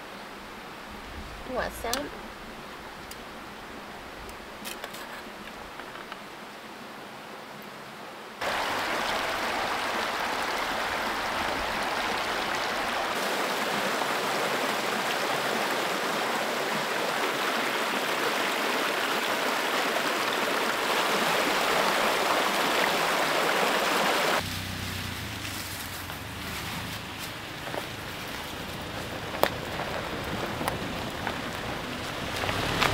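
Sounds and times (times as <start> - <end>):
water rushing over rocks: 8.4 - 24.5, 26.3 - 32.9
truck engine rumbling: 24.4 - 32.9.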